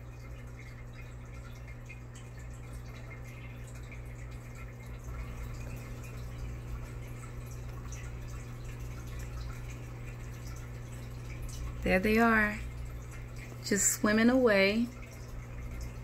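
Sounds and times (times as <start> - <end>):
aquarium air stone bubbling: 0.0 - 16.0
steady low hum: 0.0 - 16.0.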